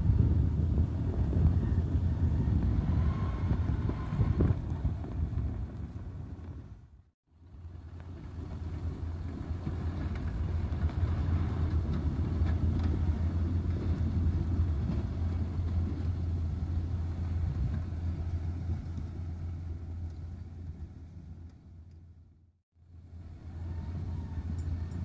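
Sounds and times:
tractor diesel engine rumbling: 0:23.0 - 0:25.0.

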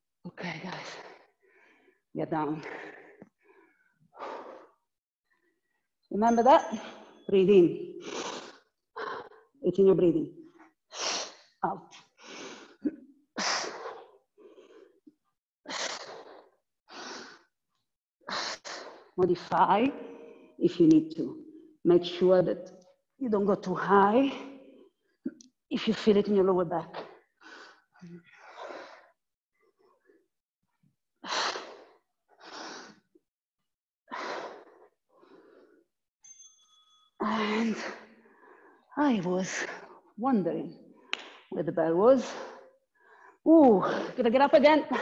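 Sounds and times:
woman breathing hard: 0:00.9 - 0:04.9, 0:08.0 - 0:09.5, 0:34.1 - 0:35.9.

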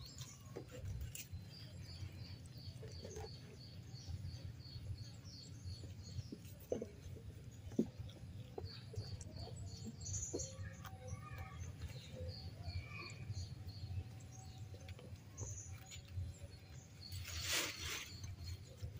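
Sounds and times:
rustling noise: 0:17.1 - 0:18.9.

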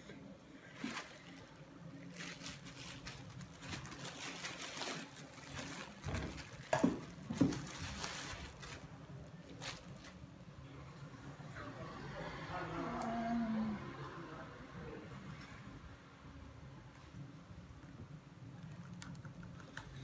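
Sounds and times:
plastic rustling: 0:00.6 - 0:10.3.

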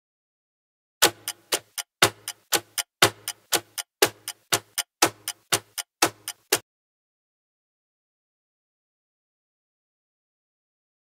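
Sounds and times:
countdown timer ticking: 0:01.0 - 0:06.6.

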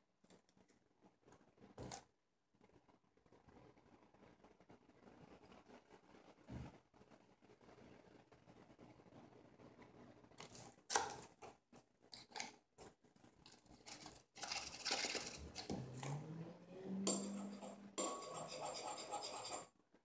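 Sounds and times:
metal spoon scraping in a bowl: 0:17.0 - 0:19.7.

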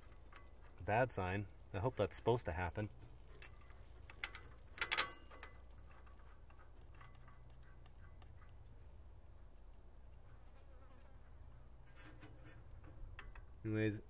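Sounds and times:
faint ticks of hand tools: 0:00.0 - 0:13.6
low steady hum: 0:00.0 - 0:14.0
sharp metallic clicks: 0:03.4 - 0:05.6.

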